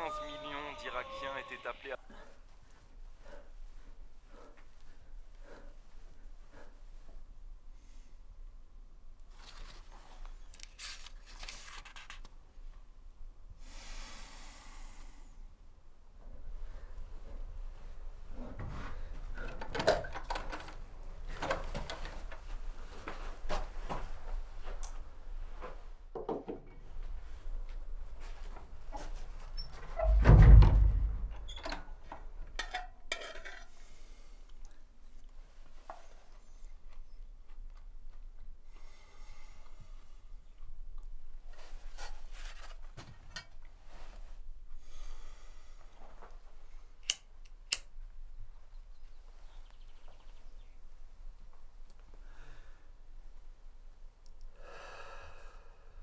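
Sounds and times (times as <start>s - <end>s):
book pages rustling: 9.3s - 12.4s.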